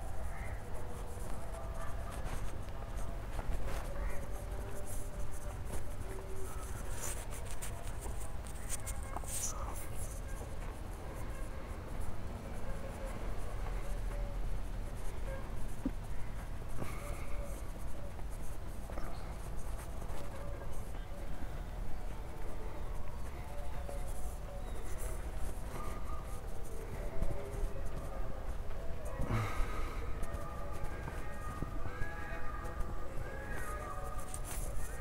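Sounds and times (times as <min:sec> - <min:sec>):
scratchy rustling: 0:00.0 - 0:14.0, 0:30.2 - 0:35.0
footsteps: 0:00.8 - 0:35.0.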